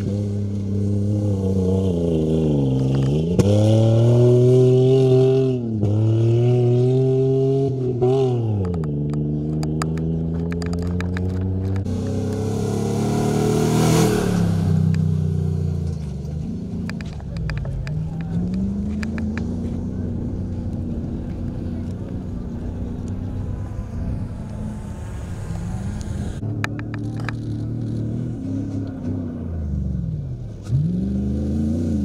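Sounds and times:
engine revving hard: 11.9 - 15.5.

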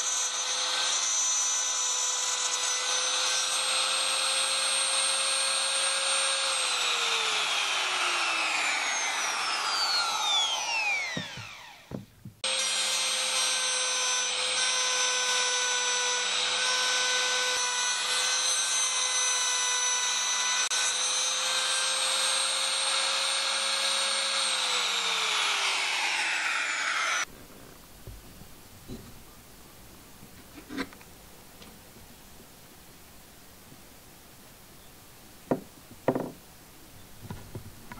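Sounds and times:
router motor whining: 0.0 - 27.3.

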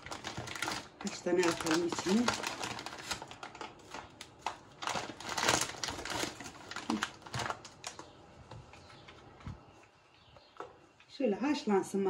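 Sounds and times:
dry pasta clattering: 0.0 - 8.1.

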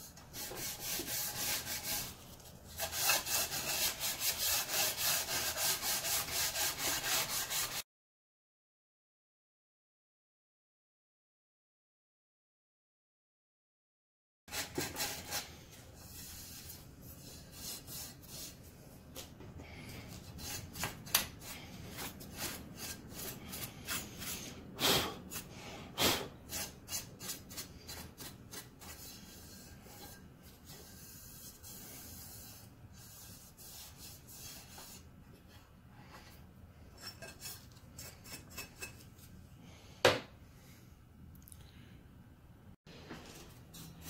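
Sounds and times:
sandpaper and file scraping metal: 0.0 - 7.8, 14.5 - 18.6, 20.1 - 24.6, 25.3 - 25.5, 26.4 - 35.1, 37.0 - 39.3, 43.4 - 44.0.

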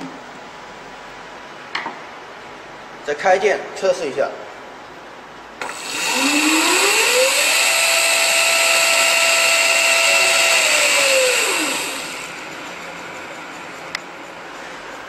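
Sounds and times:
electric motor whine: 5.6 - 12.8.

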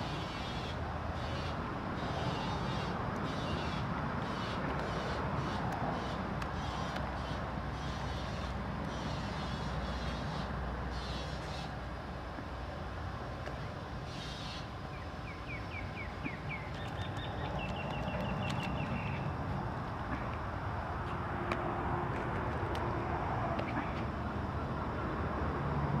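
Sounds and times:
outdoor background rumble: 0.0 - 26.0
short hissy bursts: 4.3 - 11.8
bird chirping and trilling: 14.1 - 19.2.

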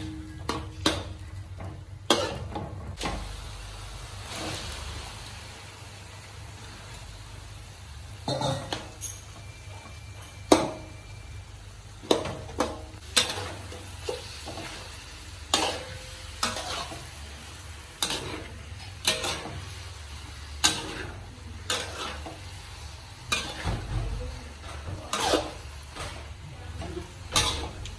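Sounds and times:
metal spatula scraping wok: 0.0 - 3.2, 13.0 - 23.9, 24.5 - 27.9.

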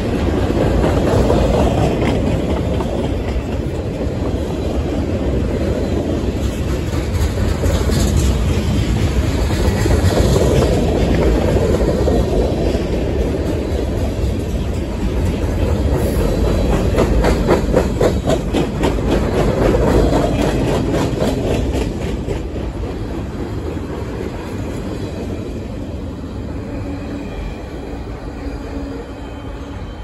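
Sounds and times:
wheels clicking over rail joints: 0.0 - 25.8
freight train rumbling past: 0.0 - 30.0.

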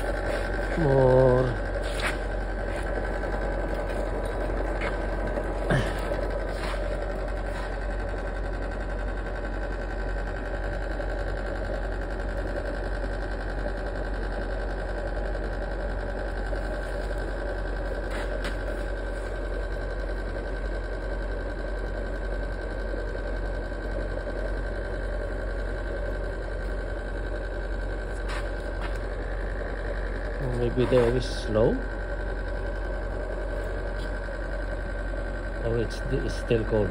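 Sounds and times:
electric blower humming: 0.0 - 14.1, 15.7 - 20.8, 23.8 - 36.9.

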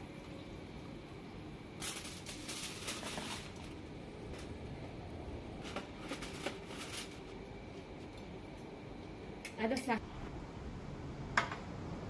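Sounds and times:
aluminium foil crinkling: 1.8 - 4.5, 5.6 - 8.2.

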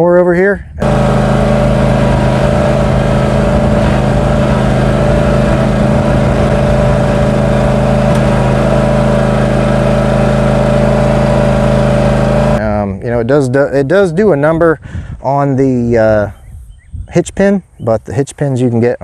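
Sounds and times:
mower engine running: 0.8 - 12.6.

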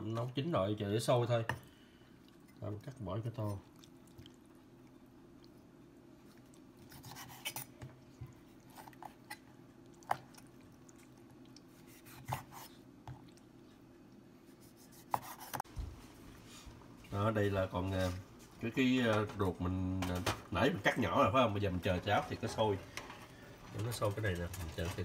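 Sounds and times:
low steady hum: 0.0 - 25.0
wet meat scraping and squishing: 6.2 - 13.9.

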